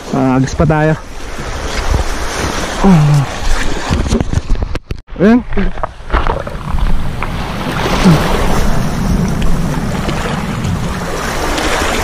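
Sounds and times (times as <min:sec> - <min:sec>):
wind buffeting microphone: 0:05.8 - 0:12.0
waves washing onto pebbles: 0:06.5 - 0:12.0.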